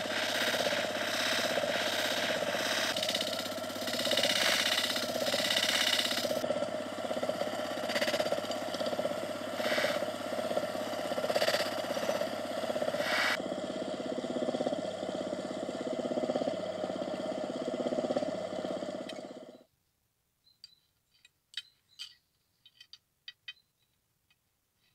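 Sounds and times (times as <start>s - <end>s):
metal hissing on polishing wheel: 0.0s - 6.5s, 7.1s - 13.4s
electric motor hum: 0.0s - 19.6s.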